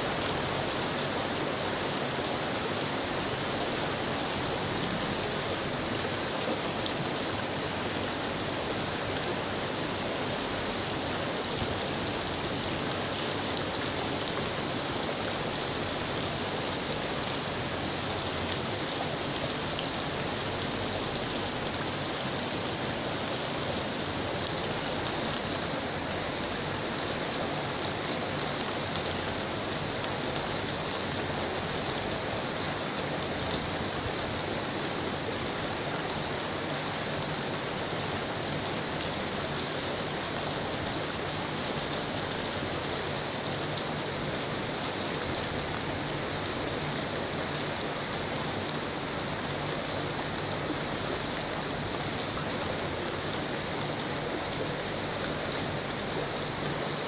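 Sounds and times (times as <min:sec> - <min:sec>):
steady rain falling: 0:00.0 - 0:57.0
water running in drainage channel: 0:00.0 - 0:57.0.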